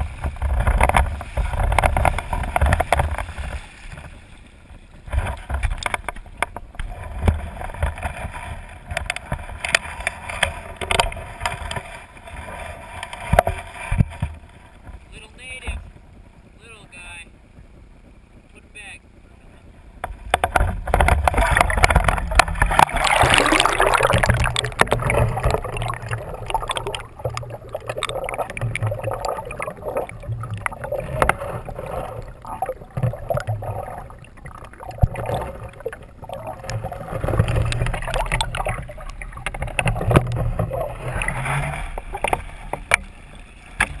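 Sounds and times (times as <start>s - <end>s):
muffled underwater rush: 19.0s - 44.0s
river water splashing: 20.0s - 44.0s.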